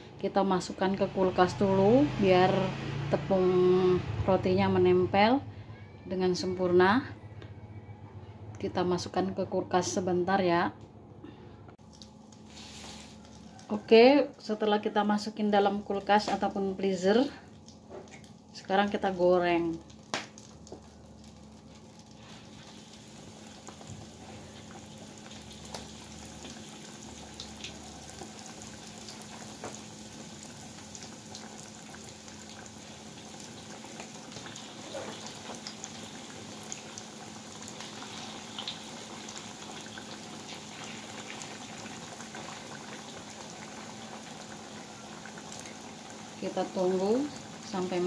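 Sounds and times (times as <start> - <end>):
food deep-frying in oil: 11.8 - 48.0.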